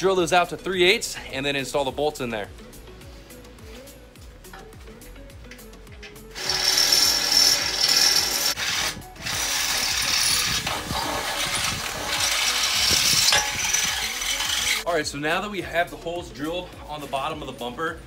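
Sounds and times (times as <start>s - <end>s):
cordless drill boring through steel: 6.3s - 14.9s.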